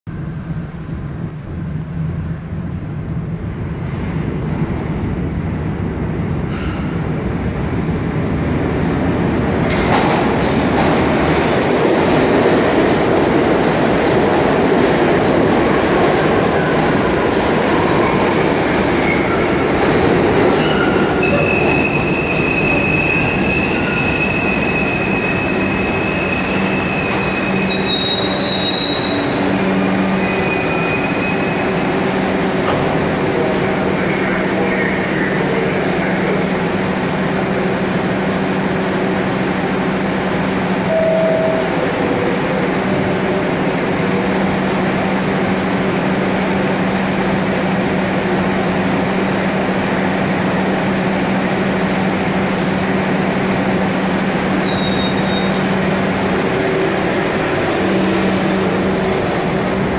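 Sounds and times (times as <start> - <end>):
train wheels rumbling on track: 0.1 - 59.9
high brake squeal: 20.6 - 31.8, 54.3 - 56.1.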